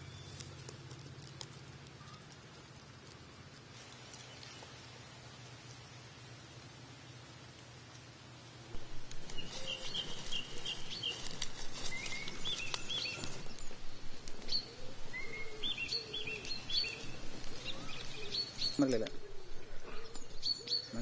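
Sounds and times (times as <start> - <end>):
small birds chirping: 0.0 - 21.0
wood fire crackling: 7.4 - 20.6.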